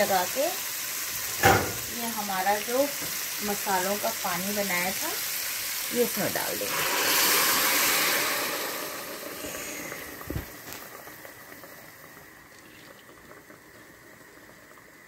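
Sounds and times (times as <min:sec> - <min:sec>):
liquid gushing and sizzling: 0:00.0 - 0:15.0.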